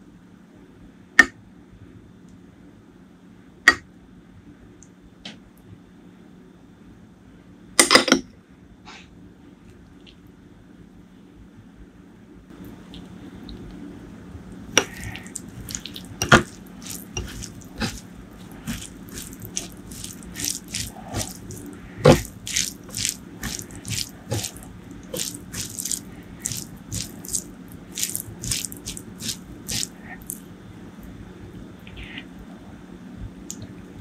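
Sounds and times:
fingers squelching rice and curry: 0:14.8 - 0:30.4.

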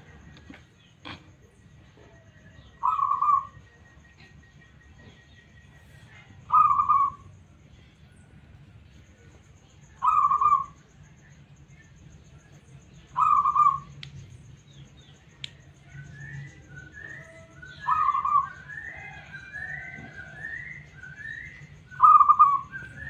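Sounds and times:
dove cooing: 0:01.0 - 0:03.8, 0:06.1 - 0:07.3, 0:10.0 - 0:10.8, 0:13.1 - 0:13.9, 0:16.0 - 0:23.0.

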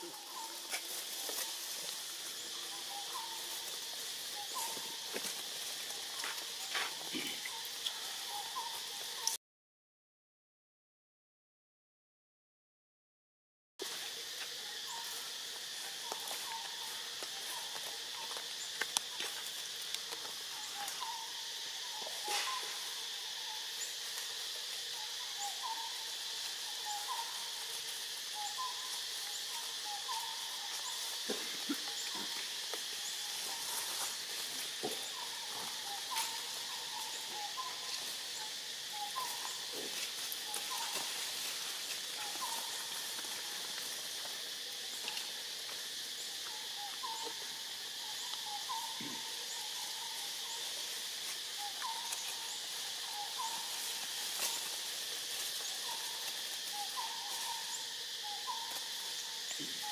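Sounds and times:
high drone of insects: 0:00.0 - 0:09.4, 0:13.8 - 0:59.9
bird calling: 0:02.3 - 0:05.1, 0:06.0 - 0:09.4, 0:16.0 - 0:19.3, 0:20.4 - 0:24.0, 0:24.8 - 0:54.7, 0:55.5 - 0:59.9.

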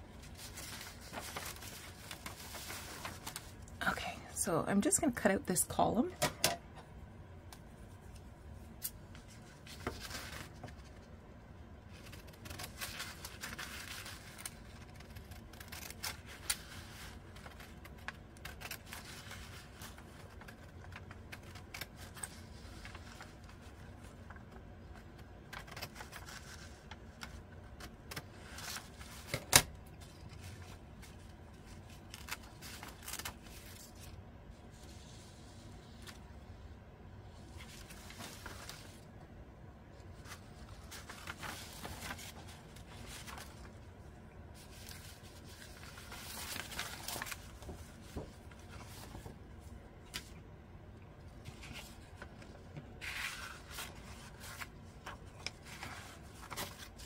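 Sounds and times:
paper rustling: 0:00.2 - 0:03.6, 0:09.1 - 0:11.1, 0:11.9 - 0:36.2, 0:37.4 - 0:39.0, 0:40.1 - 0:43.9, 0:44.6 - 0:50.4, 0:51.3 - 0:57.0
scissors snipping paper: 0:12.0 - 0:16.7, 0:17.4 - 0:19.4.

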